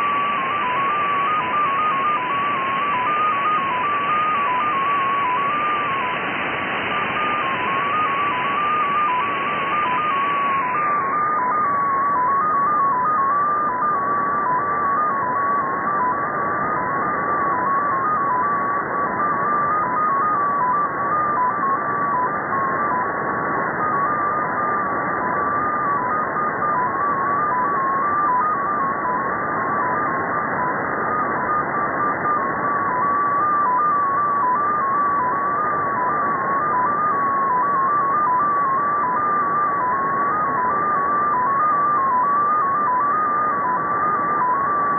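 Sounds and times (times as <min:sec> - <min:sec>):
static hiss: 0:00.0 - 0:11.4
hopping data tone: 0:00.0 - 0:44.9.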